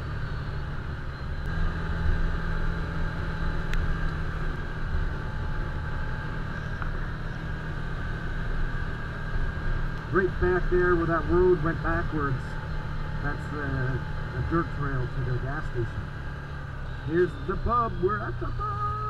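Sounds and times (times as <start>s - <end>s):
engine running steadily: 0.0s - 19.0s.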